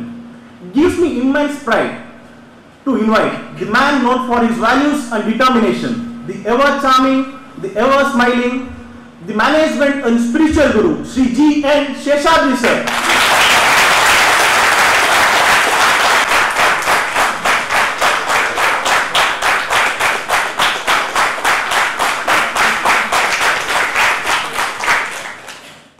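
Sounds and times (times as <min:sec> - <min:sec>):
rhythmic unison clapping: 0:12.7 - 0:25.9
audience applause: 0:12.9 - 0:25.9.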